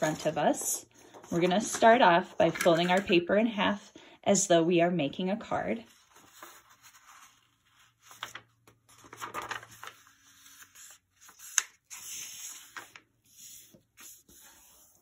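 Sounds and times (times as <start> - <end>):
paper rustling and sliding on wood: 5.9 - 15.0.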